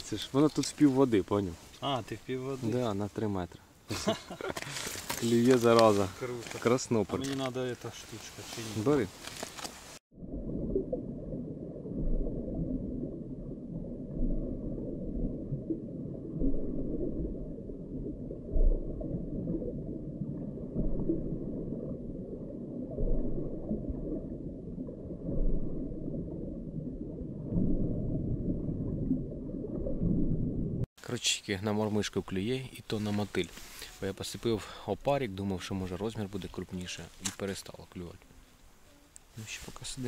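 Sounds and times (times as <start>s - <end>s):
low underwater rumble: 10.1s - 30.9s.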